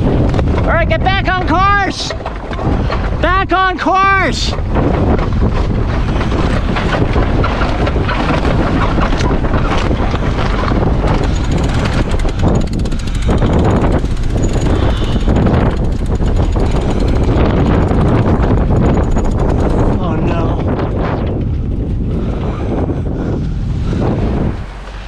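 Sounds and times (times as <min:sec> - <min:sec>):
wind buffeting microphone: 0:00.0 - 0:25.0
winch clicking: 0:06.4 - 0:20.5.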